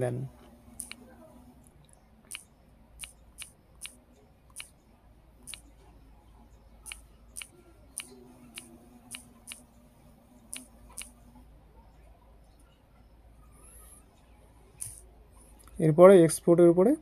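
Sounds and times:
phone keyboard typing clicks: 0:00.8 - 0:01.1, 0:02.3 - 0:04.8, 0:05.4 - 0:05.7, 0:06.8 - 0:09.7, 0:10.5 - 0:11.2.

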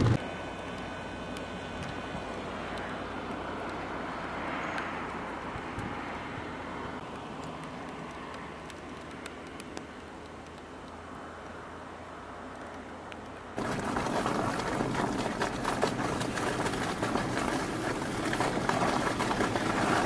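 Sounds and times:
highway traffic: 0:00.0 - 0:20.0
wind: 0:00.0 - 0:20.0
fine crackle: 0:13.6 - 0:20.0.

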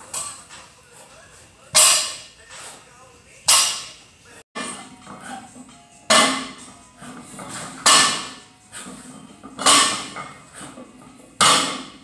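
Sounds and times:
barbell plates clanking on floor: 0:04.6 - 0:12.0.

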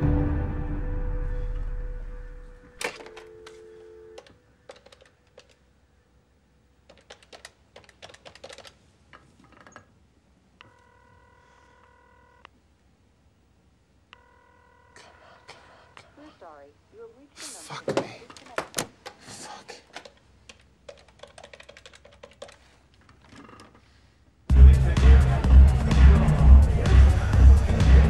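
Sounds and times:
dial tone humming: 0:00.8 - 0:04.4
telephone ringing tone: 0:02.7 - 0:04.4, 0:10.6 - 0:12.5, 0:14.2 - 0:15.6.

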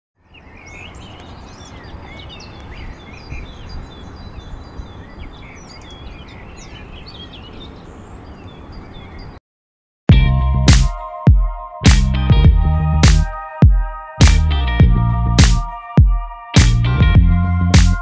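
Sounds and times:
small birds chirping: 0:00.2 - 0:09.4.

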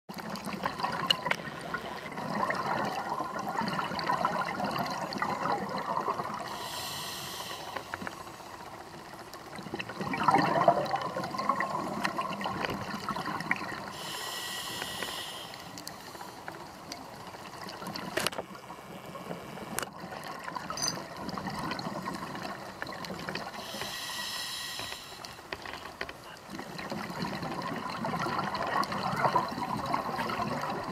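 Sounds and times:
bubbly gurgling exhalations: 0:00.1 - 0:06.8, 0:09.5 - 0:14.2, 0:19.9 - 0:23.8, 0:26.4 - 0:30.9
regulator hissing inhalations: 0:06.5 - 0:08.2, 0:13.9 - 0:16.5, 0:23.6 - 0:25.4.

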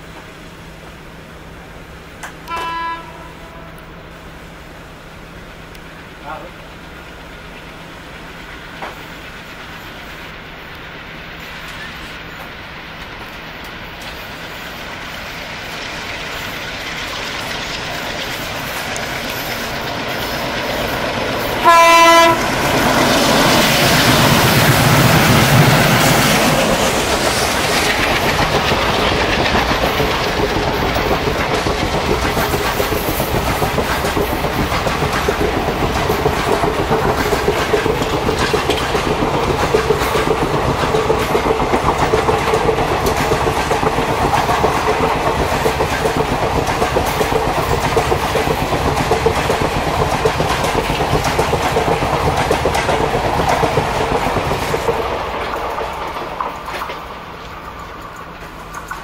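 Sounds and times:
locomotive engines rumbling: 0:00.8 - 0:59.0
train coaches clattering: 0:02.1 - 0:04.0, 0:05.7 - 0:59.0
train horn blast: 0:02.4 - 0:03.9, 0:21.6 - 0:22.6.

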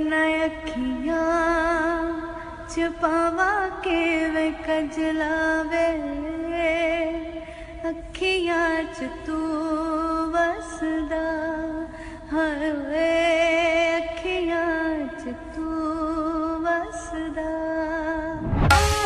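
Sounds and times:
soft accompaniment: 0:18.6 - 0:19.0.

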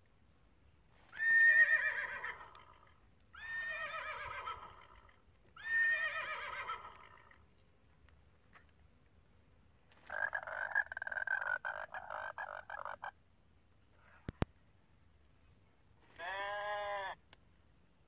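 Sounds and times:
recorded horse whinny: 0:01.2 - 0:07.4.

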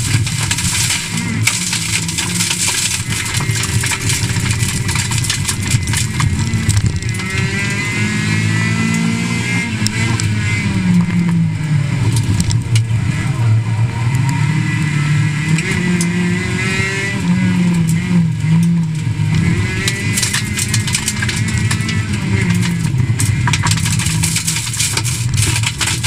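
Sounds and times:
gravel hitting car underside: 0:00.0 - 0:07.8, 0:09.8 - 0:12.9, 0:17.8 - 0:26.0
rally car engine accelerating: 0:00.0 - 0:26.0.

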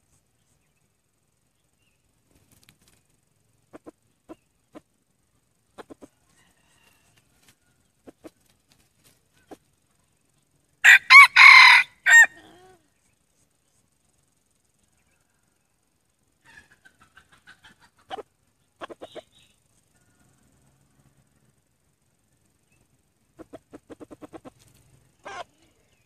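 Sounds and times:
rooster clucking: 0:03.7 - 0:04.9, 0:05.7 - 0:07.1, 0:08.0 - 0:08.5, 0:16.4 - 0:19.5, 0:23.4 - 0:25.8
rooster crowing: 0:06.2 - 0:07.8, 0:10.8 - 0:12.8.

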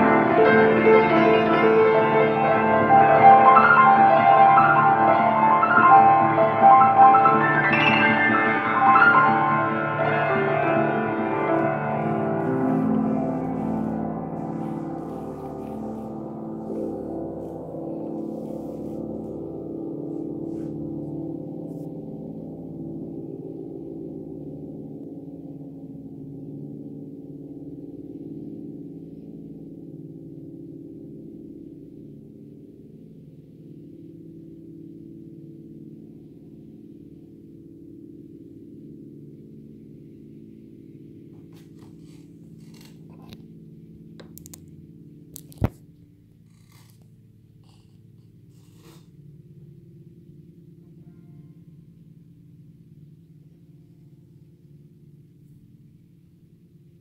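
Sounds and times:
piano chord ringing out: 0:00.0 - 0:32.4.

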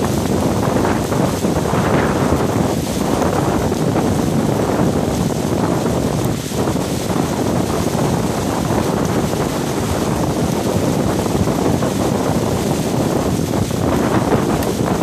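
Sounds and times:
hail clattering: 0:00.0 - 0:15.0
wind rushing: 0:00.0 - 0:15.0.

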